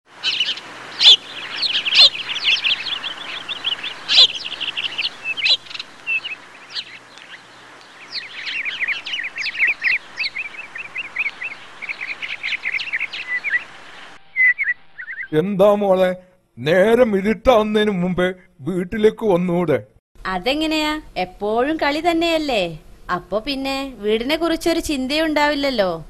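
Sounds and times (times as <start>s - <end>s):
birds chirping and twittering: 0.1s - 15.4s.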